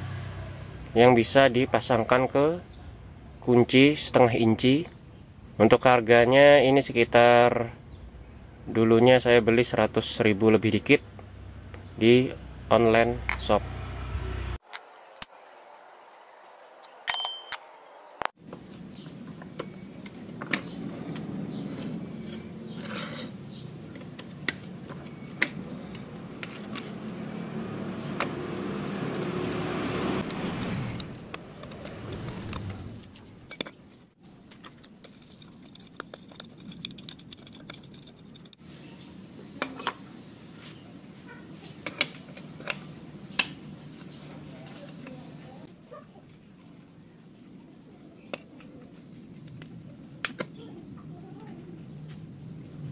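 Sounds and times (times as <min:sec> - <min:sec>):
metal tools clinking and scraping: 0:18.4 - 0:38.6, 0:39.6 - 0:40.1, 0:41.7 - 0:45.4.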